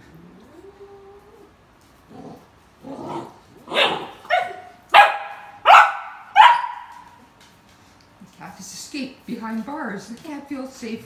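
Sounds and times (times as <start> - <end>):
dog barking: 3.7 - 7.1.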